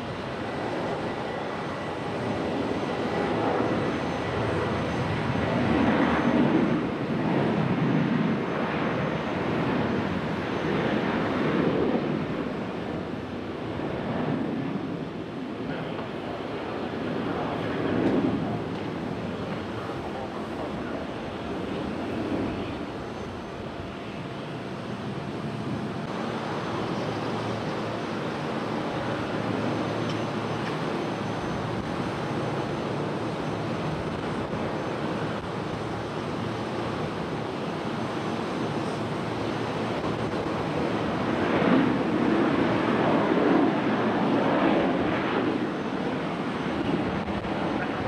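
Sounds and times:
jet engines roaring: 0.0s - 48.0s.

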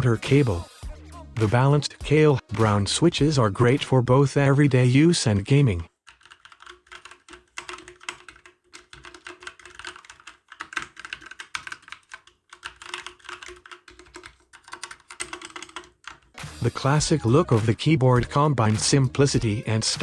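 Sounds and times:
mechanical keyboard typing: 6.1s - 16.4s.

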